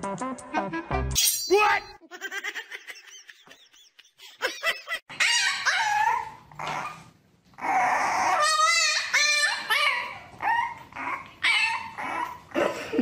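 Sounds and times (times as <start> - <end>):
puppy whining and yelping: 5.1 - 12.8.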